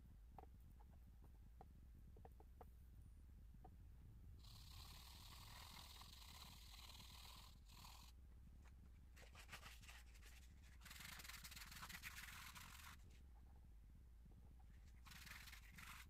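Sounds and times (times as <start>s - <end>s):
low steady hum: 0.0s - 16.0s
charcoal scratching on paper: 4.5s - 8.1s, 9.2s - 13.1s, 14.8s - 16.0s.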